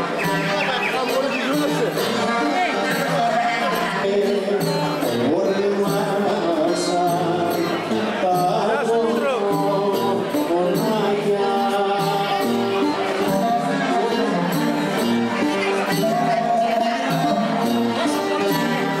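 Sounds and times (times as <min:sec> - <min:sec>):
folk dance music: 0:00.0 - 0:19.0
violin: 0:09.9 - 0:19.0.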